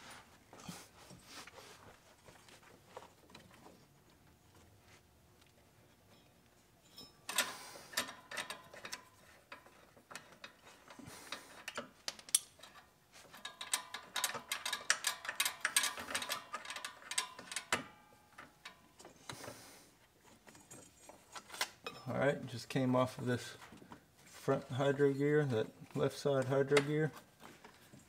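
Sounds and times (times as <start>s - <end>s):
belt clicking and rattling: 7.3s - 19.5s.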